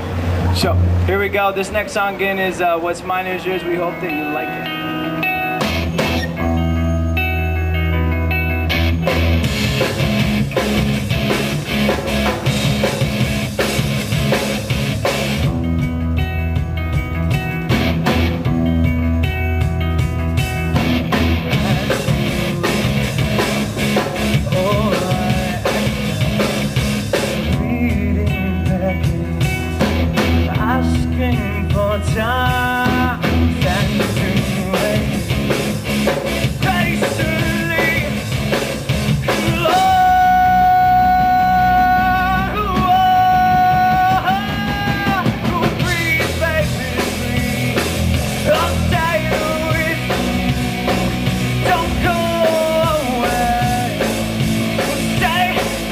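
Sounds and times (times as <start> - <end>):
electric guitars: 0.0 - 55.9
drum kit: 5.0 - 55.9
man singing: 21.4 - 26.6, 27.4 - 35.8, 36.4 - 38.6, 39.3 - 55.9.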